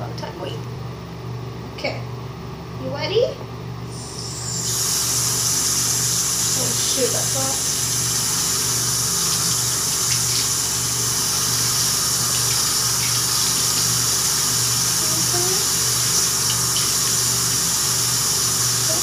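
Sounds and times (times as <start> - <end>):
tap water running: 3.9 - 19.0.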